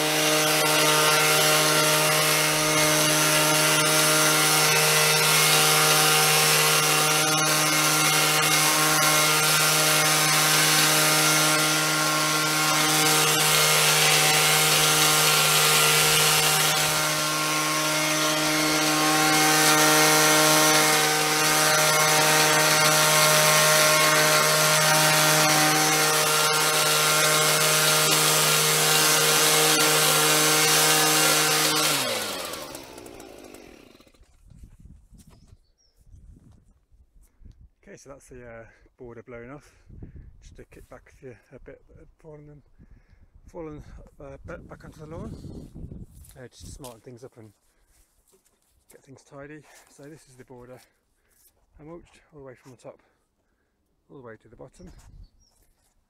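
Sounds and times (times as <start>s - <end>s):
leaf blower running: 0.0s - 34.4s.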